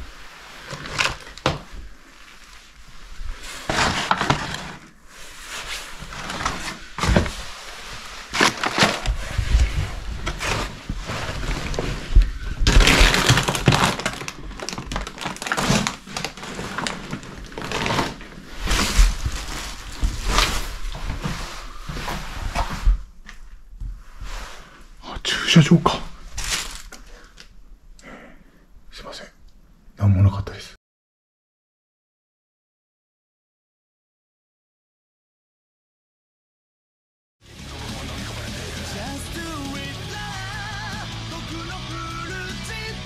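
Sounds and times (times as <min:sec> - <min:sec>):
footsteps crunching on debris: 0:07.0 - 0:23.1.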